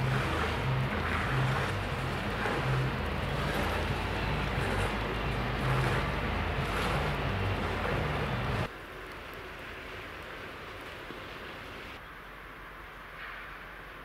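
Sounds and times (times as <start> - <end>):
diesel locomotive engine idling: 0.0 - 8.7.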